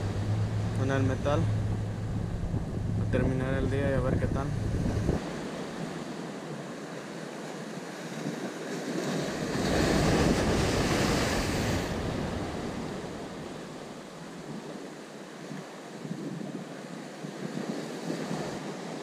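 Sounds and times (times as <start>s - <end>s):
surf washing: 0.0s - 19.0s
waves splashing against concrete blocks: 4.4s - 15.0s.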